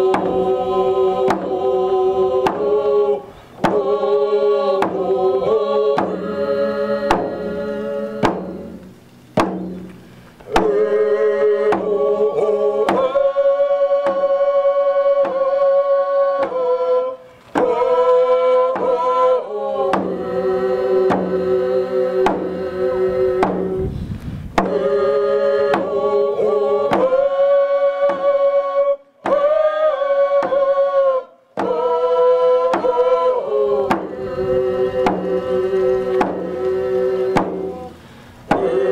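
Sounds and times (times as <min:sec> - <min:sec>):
frame drums beating: 0:00.0 - 0:02.8, 0:03.6 - 0:04.0, 0:04.8 - 0:06.4, 0:07.1 - 0:11.0, 0:11.7 - 0:13.4, 0:17.6 - 0:18.1, 0:19.9 - 0:23.9, 0:24.6 - 0:24.9, 0:25.7 - 0:27.3, 0:33.8 - 0:38.9
group singing: 0:00.0 - 0:38.9.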